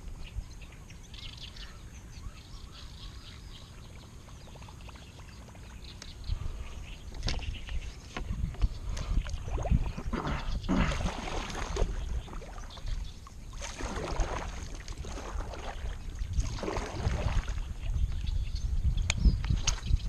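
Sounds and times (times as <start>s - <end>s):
paddle splashing in water: 7.1s - 17.9s.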